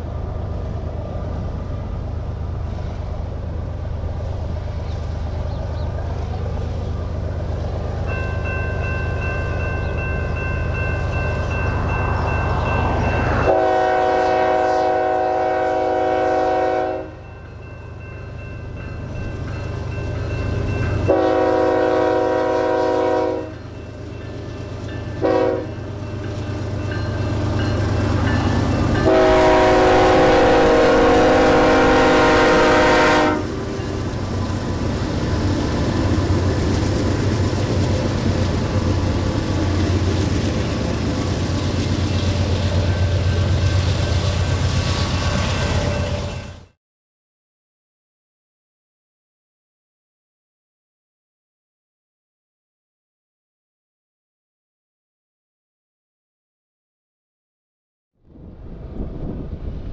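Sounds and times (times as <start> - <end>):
train rumble: 0.0 - 46.8, 58.3 - 59.9
locomotive horn: 13.4 - 17.2, 21.1 - 23.6, 25.2 - 25.8, 29.0 - 33.8.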